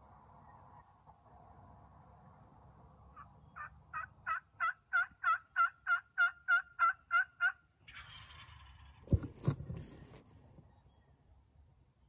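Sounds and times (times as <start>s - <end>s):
turkey yelps: 3.2s - 9.0s
brief rustle: 8.4s - 10.7s.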